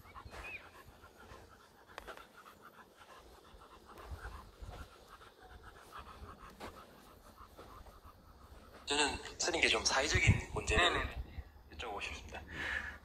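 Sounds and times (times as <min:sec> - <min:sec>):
dog panting fast: 0:00.0 - 0:09.9.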